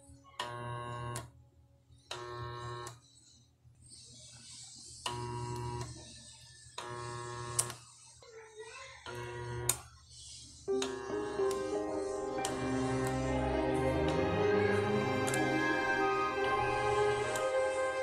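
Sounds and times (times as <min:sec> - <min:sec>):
washing machine motor buzzing: 0:00.4 - 0:01.3, 0:02.1 - 0:03.0, 0:05.0 - 0:06.0, 0:06.8 - 0:07.8, 0:09.1 - 0:09.8, 0:10.7 - 0:18.0.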